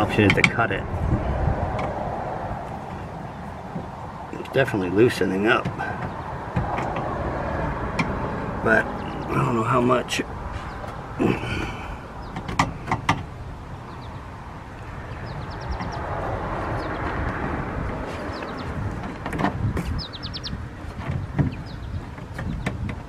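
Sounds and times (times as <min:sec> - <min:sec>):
bird chirping rapidly: 0:10.5 - 0:11.0, 0:13.6 - 0:17.2, 0:18.2 - 0:18.9, 0:19.8 - 0:22.8.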